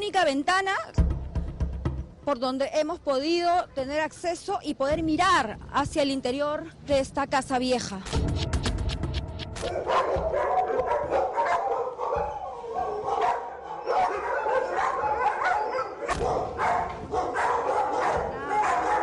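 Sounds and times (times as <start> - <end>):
several dogs barking: 9.6 - 19.0.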